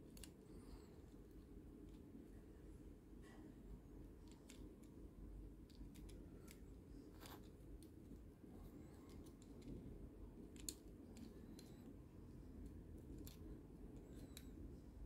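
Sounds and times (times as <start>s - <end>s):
low steady hum: 0.0s - 15.0s
plastic toy parts clicking: 0.1s - 0.4s, 4.2s - 5.0s, 5.6s - 7.9s, 9.0s - 9.8s, 10.4s - 11.8s, 13.0s - 14.5s.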